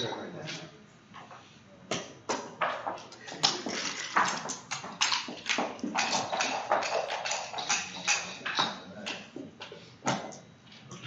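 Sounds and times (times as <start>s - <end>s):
game checkers clicking on board: 2.8s - 9.3s.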